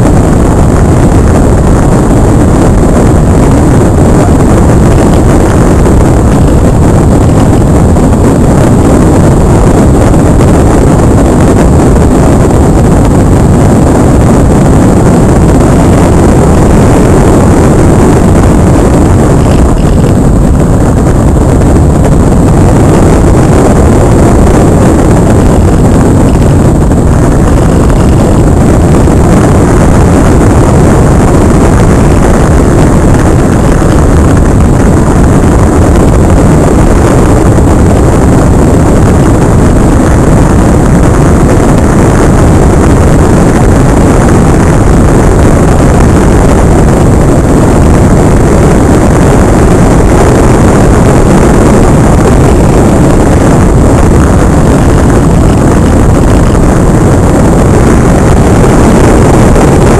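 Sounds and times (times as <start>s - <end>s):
faint high whine: 0.0s - 59.9s
wind buffeting microphone: 0.0s - 59.9s.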